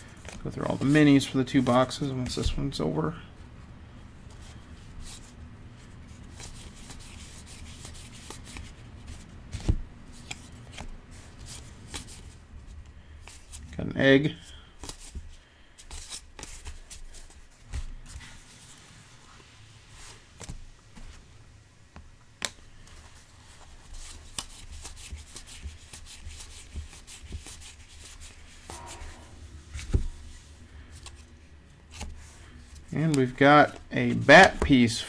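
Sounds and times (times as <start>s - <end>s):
cards sliding and clicking: 6.3s - 12.4s, 14.8s - 18.8s, 20.4s - 21.2s, 22.4s - 29.1s, 29.8s - 31.3s, 31.9s - 34.7s.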